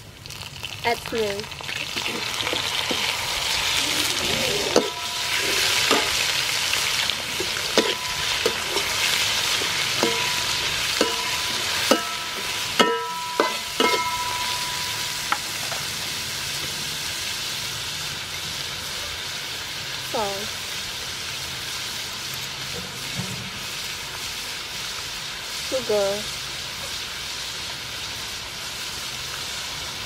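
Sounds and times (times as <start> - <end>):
scallops sizzling in a wok: 0.0 - 30.0
metal spatula scraping a pan: 2.0 - 15.9.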